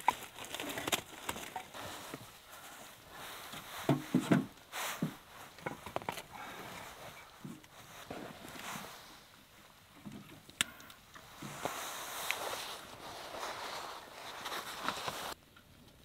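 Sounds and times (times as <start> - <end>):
firewood knocking and clattering: 3.5 - 6.2.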